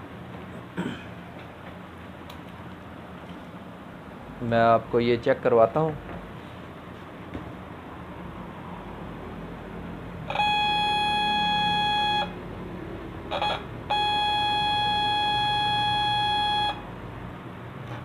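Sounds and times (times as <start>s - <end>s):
high beeping test tone: 10.3s - 12.4s, 13.3s - 16.8s.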